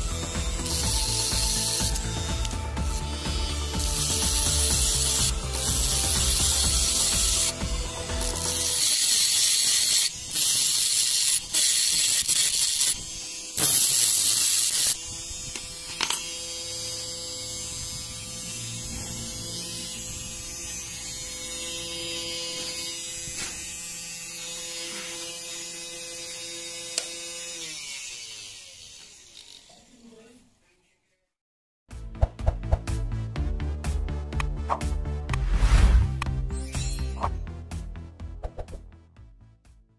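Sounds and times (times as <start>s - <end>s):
angle grinder cutting metal: 0.0s - 30.2s.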